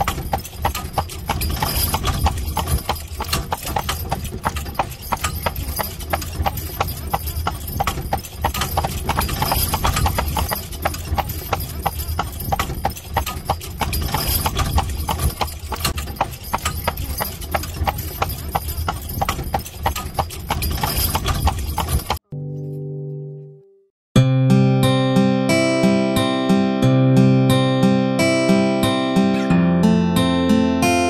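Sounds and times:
horse hooves clip-clopping on pavement: 0.0 - 22.2.

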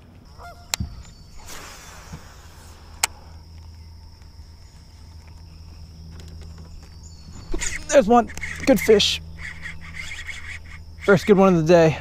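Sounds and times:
electric motor humming and whining: 0.0 - 12.0.

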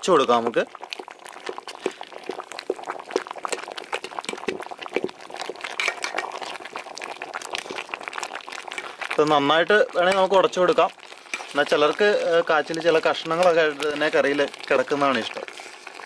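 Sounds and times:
bubbling water: 0.0 - 16.0
metal spoon scraping a pot: 5.7 - 6.4, 11.1 - 11.8.

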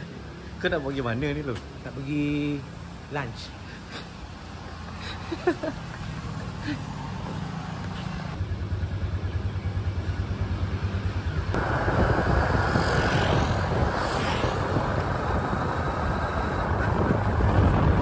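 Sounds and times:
wind rush on microphone: 11.6 - 18.0.

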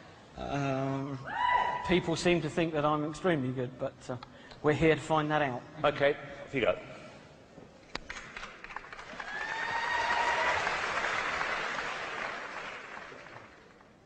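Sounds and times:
audience applauding: 8.1 - 14.0.

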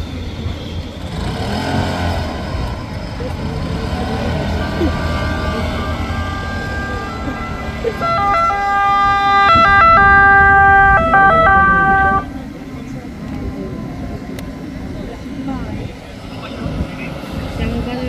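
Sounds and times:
electronic two-tone siren: 5.0 - 12.3.

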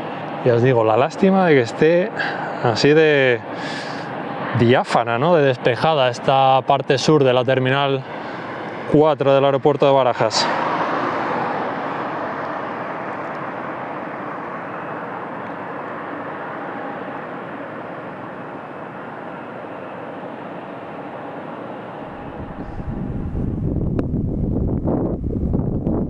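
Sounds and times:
car passing: 0.0 - 25.5
faint jet engine whine: 0.0 - 26.0
wind buffeting microphone: 22.0 - 26.0.

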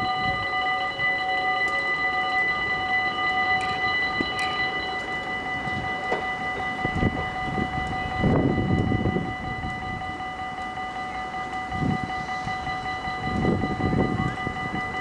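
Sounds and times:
level crossing warning bells: 0.0 - 15.0.

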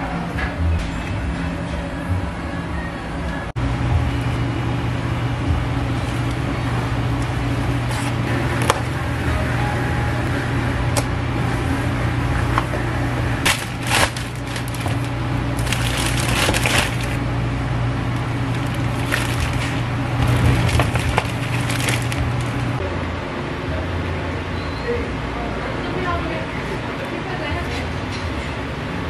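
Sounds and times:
steady low hum: 0.0 - 29.0
plastic bag crinkling: 13.5 - 17.2, 18.4 - 22.8.

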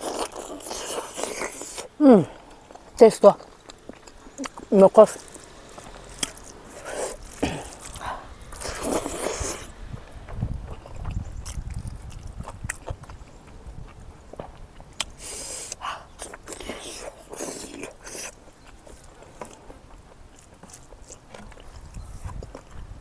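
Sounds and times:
close chewing and biting: 0.0 - 23.0
noisy sucking sounds: 5.4 - 9.8.

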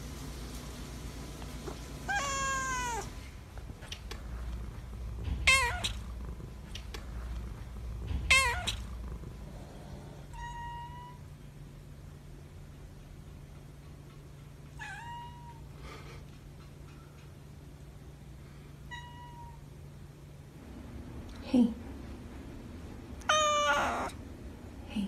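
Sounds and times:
cat meowing: 2.1 - 3.1, 5.4 - 6.0, 8.3 - 8.8, 10.3 - 11.2, 14.8 - 15.6, 18.9 - 19.6, 23.2 - 24.2.

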